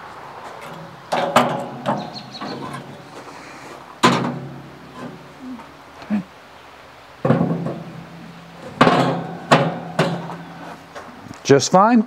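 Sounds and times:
metal clanks: 0.6s - 3.1s, 4.0s - 5.3s, 7.2s - 11.1s.

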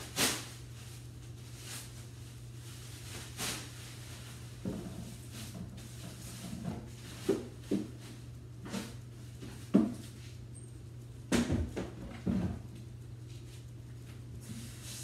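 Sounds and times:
plastic bags rustling: 0.0s - 8.1s
steady low hum: 0.0s - 15.0s
trash can knocks: 11.3s - 12.6s.

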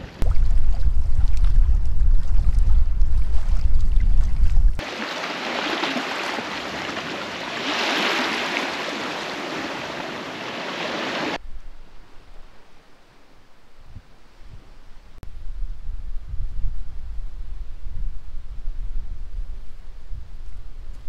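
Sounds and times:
wind buffeting microphone: 0.0s - 4.8s, 13.7s - 21.0s
faint wind: 0.0s - 21.0s
small waves washing on beach: 2.2s - 11.4s.

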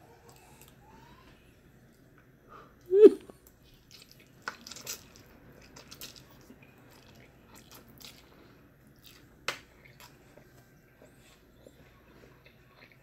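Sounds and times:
person slurping and chewing noodles: 3.6s - 13.0s.

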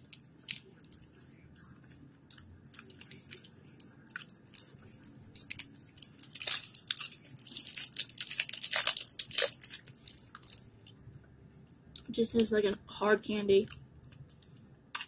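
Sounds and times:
plastic candy wrapper crinkling: 0.0s - 1.2s, 2.7s - 10.7s.

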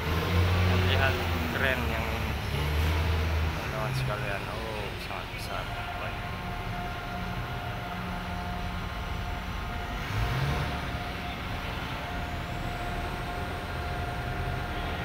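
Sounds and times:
crane whine: 0.0s - 15.0s
machinery hum: 0.0s - 15.0s.

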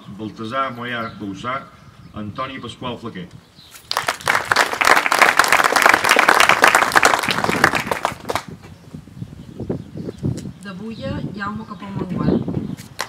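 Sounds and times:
audience applauding: 3.9s - 8.5s.

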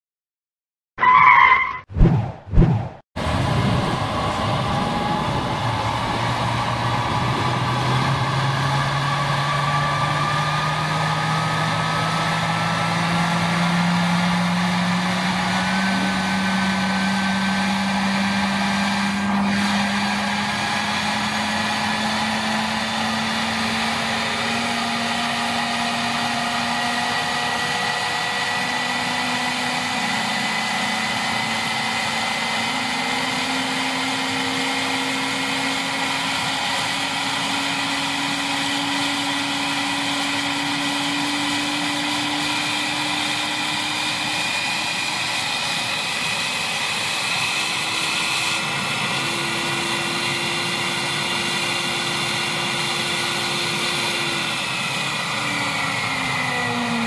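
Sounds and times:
rush of air: 1.9s - 8.1s
fan whine: 3.2s - 57.0s.

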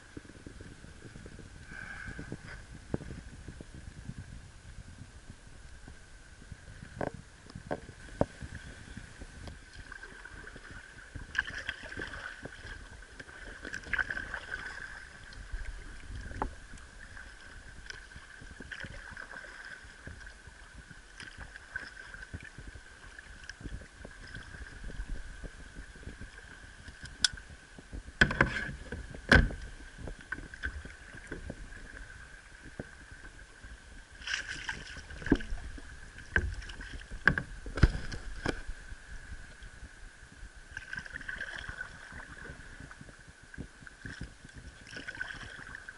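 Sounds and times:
paddle splashing and dripping: 9.5s - 27.5s, 34.1s - 38.8s, 40.7s - 43.2s, 43.9s - 45.9s.

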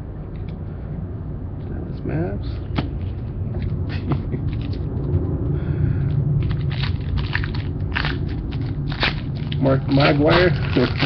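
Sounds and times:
steady low hum: 0.0s - 11.0s
cards clicking and rustling: 6.1s - 11.0s.

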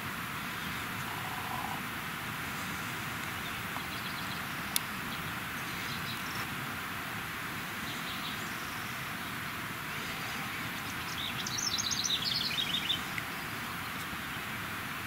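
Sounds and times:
steady outdoor hiss: 0.0s - 15.0s
songbird chirping: 0.4s - 1.8s, 3.2s - 6.5s, 7.7s - 14.5s.

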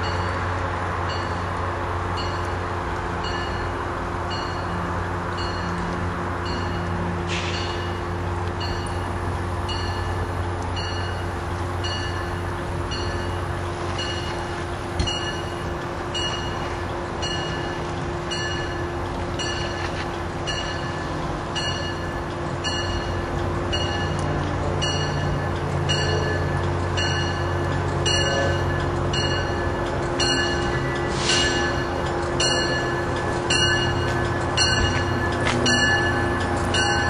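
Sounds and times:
diesel train rumble: 0.0s - 37.0s
bell ringing: 24.8s - 37.0s.

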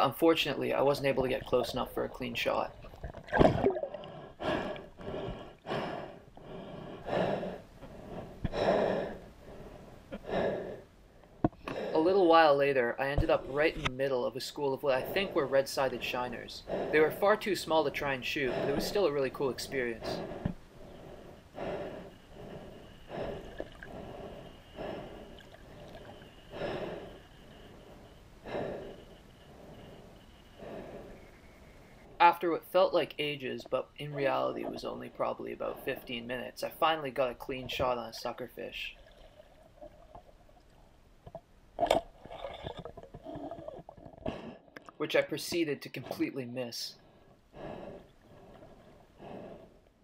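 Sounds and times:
breathing through a snorkel: 3.9s - 10.9s, 20.0s - 32.2s, 47.0s - 50.0s.

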